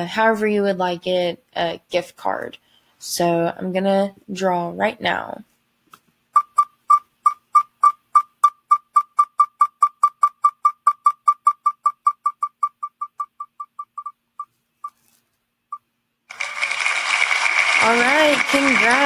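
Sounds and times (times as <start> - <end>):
spinning wheel ticking: 6.4 - 14.2.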